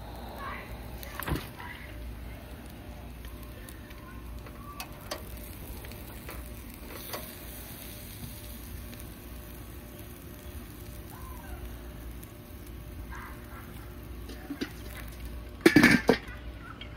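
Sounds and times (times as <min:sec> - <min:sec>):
patties sizzling on a grill: 0:00.0 - 0:16.9.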